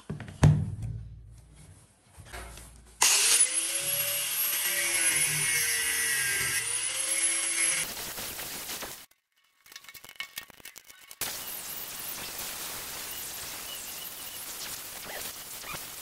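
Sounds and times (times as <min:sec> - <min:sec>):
angle grinder on wood: 0:03.0 - 0:07.9.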